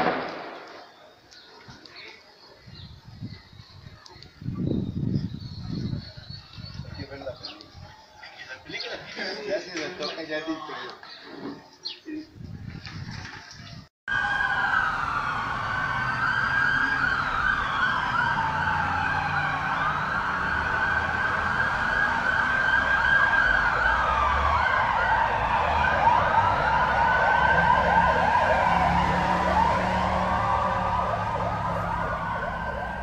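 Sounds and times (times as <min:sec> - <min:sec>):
sirens wailing: 0:14.1 - 0:33.0
sirens yelping: 0:14.1 - 0:33.0.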